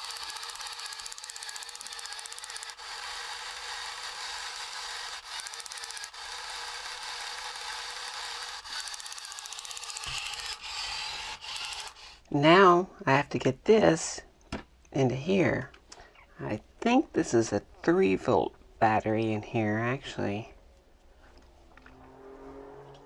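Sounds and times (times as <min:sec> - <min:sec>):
toy tank electric motors whirring: 0:00.0 - 0:12.3.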